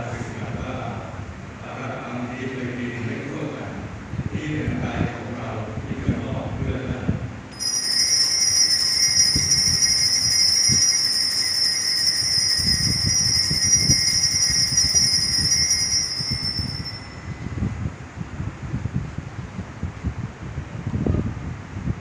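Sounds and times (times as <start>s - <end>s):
altar bells ringing: 7.6s - 17.5s.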